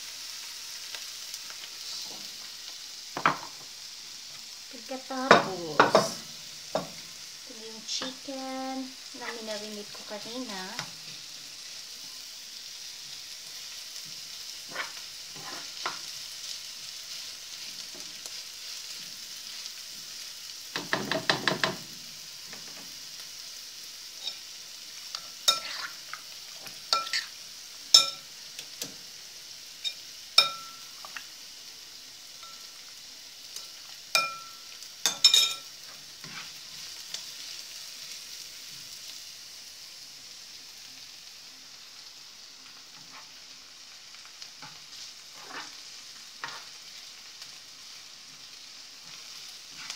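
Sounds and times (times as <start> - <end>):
onions sizzling in oil: 0.0 - 49.9
spoon scraping pan: 14.6 - 16.2, 25.1 - 28.3, 33.6 - 36.9, 42.9 - 43.4, 44.6 - 46.8, 49.0 - 49.9
utensil clinking against pan: 34.2 - 35.6.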